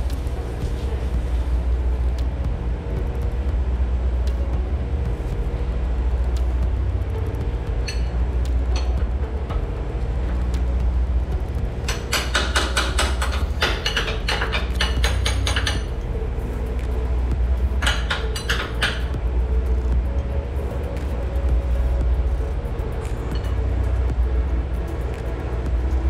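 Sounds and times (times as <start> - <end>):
low machinery hum: 0.0 - 26.0
metal tool clinking and tapping: 7.8 - 9.0, 11.8 - 16.0, 17.8 - 19.2.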